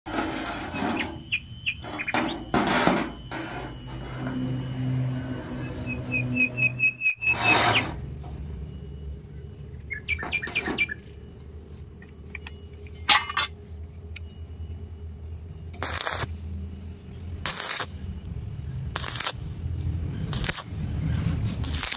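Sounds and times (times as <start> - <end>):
bird chirping: 5.5 - 7.9, 9.3 - 11.2
low steady hum: 8.0 - 21.9.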